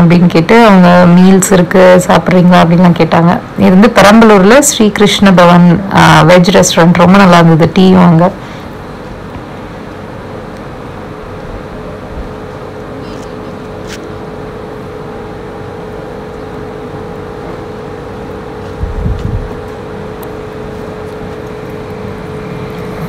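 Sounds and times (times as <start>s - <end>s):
vehicle engine hum: 9.4s - 23.0s.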